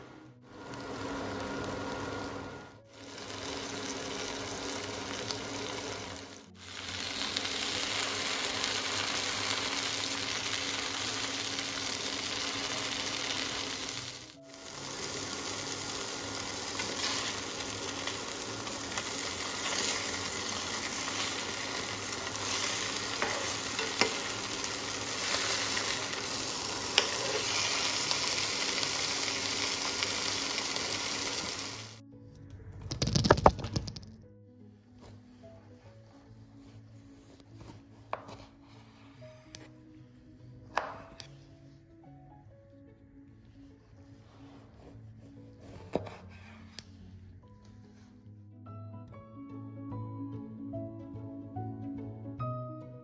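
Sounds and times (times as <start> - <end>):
fish sizzling in a frying pan: 2.9 - 32.0.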